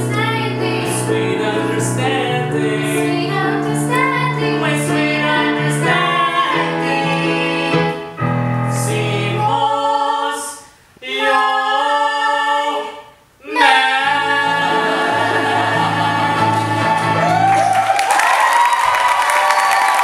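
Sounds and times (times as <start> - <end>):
piano accompaniment: 0.0 - 9.7, 13.8 - 18.0
man and woman singing duet: 0.0 - 17.6.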